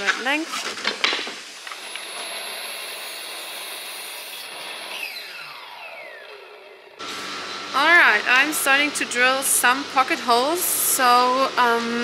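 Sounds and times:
miter saw cutting plywood: 0.0 - 12.0
saw blade spinning down: 1.7 - 7.0.

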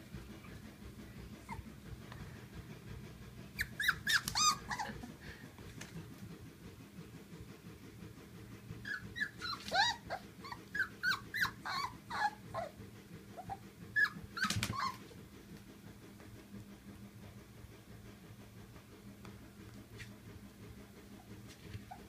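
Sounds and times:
puppies squeaking and yipping: 3.6 - 4.9, 8.9 - 12.7, 13.4 - 15.0.

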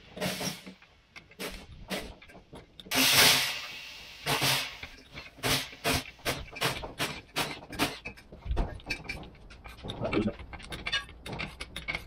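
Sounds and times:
brief hiss: 2.9 - 4.8.

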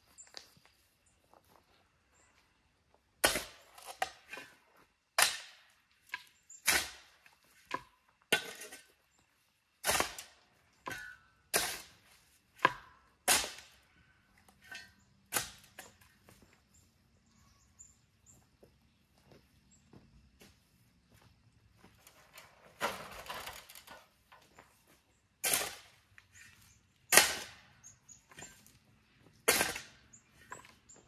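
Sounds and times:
tool striking the ground: 3.1 - 16.8, 25.3 - 31.0
soil and stones rattling: 21.9 - 31.0.

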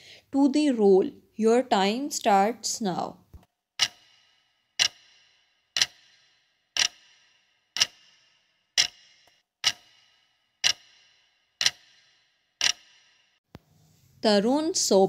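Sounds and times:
clock ticking: 3.8 - 13.4.

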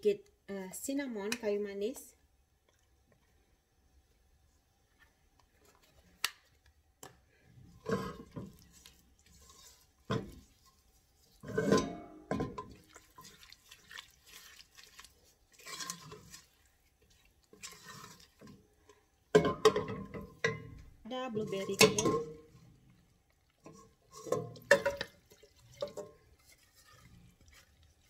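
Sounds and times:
spatula scraping thick filling in pot: 7.7 - 12.0, 12.7 - 18.8, 23.6 - 28.0.

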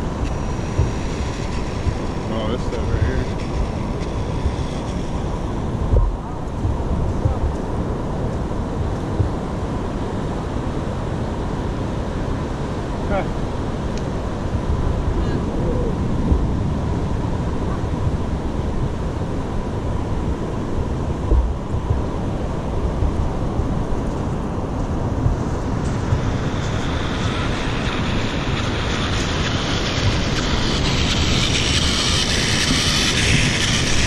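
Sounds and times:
hiss of tyres and drivetrain: 0.0 - 34.0
wind rumble on microphone: 0.0 - 34.0.

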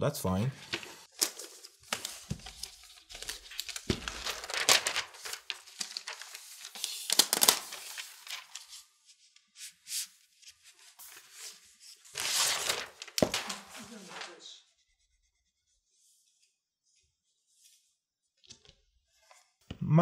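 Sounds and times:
paper crinkling and tearing: 0.6 - 8.9, 11.0 - 14.5.

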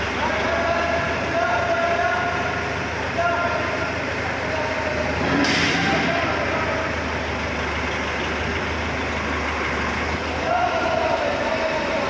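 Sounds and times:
diesel crane engine droning: 0.0 - 12.0
sudden harsh noise: 5.1 - 6.7.

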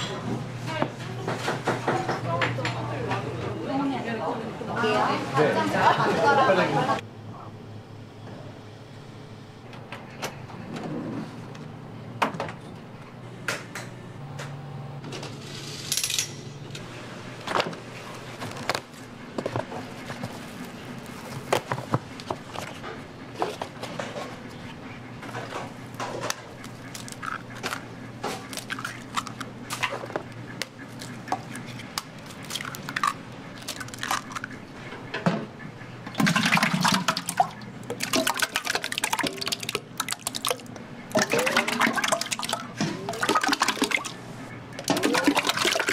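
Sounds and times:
eggshells cracking: 26.6 - 29.9, 30.9 - 34.6
eggs splashing into metal pot: 36.2 - 44.2, 44.8 - 45.9.

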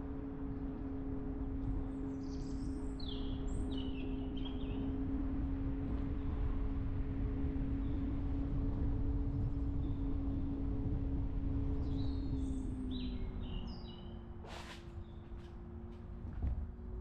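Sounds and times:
road rumble: 4.2 - 17.0.

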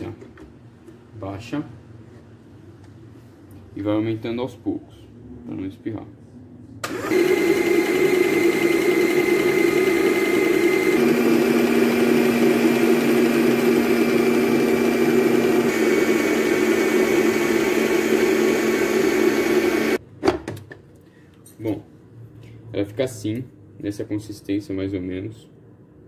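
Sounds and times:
stand mixer motor whine: 6.8 - 20.0.

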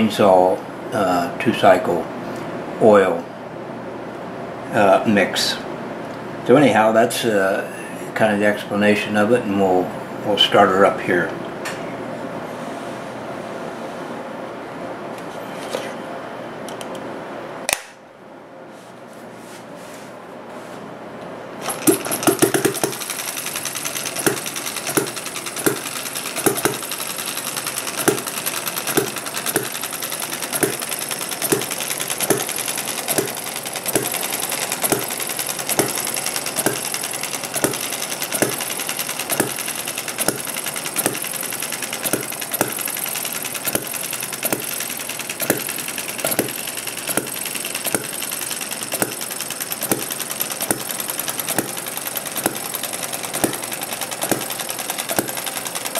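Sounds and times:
mechanical clatter: 21.6 - 55.9
engine firing knocks: 21.7 - 23.1, 24.2 - 26.9, 28.0 - 29.8, 30.5 - 34.2, 34.8 - 36.0, 37.6 - 38.7, 42.1 - 42.9.

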